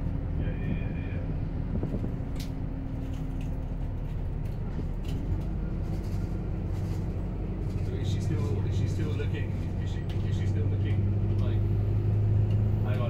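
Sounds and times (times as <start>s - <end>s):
bus interior drone: 0.0s - 13.0s
light rattles and clicks: 1.7s - 11.5s.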